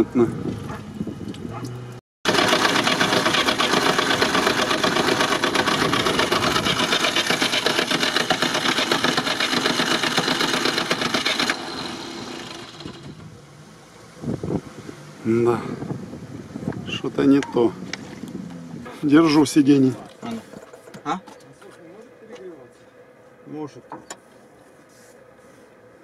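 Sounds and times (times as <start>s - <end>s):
car engine running: 0.0s - 24.8s
fast mechanical ticking clatter: 2.3s - 13.2s.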